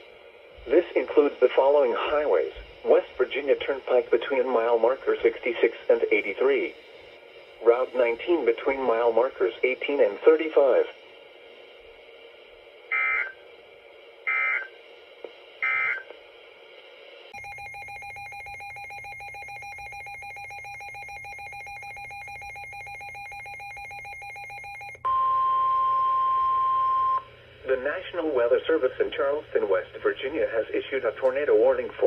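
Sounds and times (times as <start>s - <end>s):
steady buzz with faint tones: 0.0s - 25.0s, 27.1s - 32.0s
digital data tone bursts: 12.9s - 13.4s, 15.6s - 16.0s
single-pitched alarm tone: 12.9s - 13.4s, 14.3s - 14.7s.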